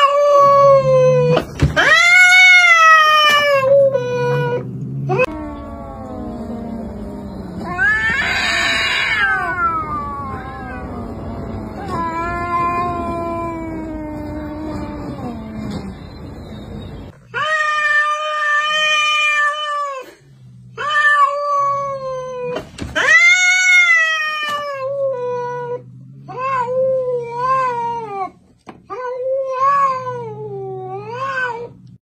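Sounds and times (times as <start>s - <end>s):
cats yowling: 0.0s - 32.0s.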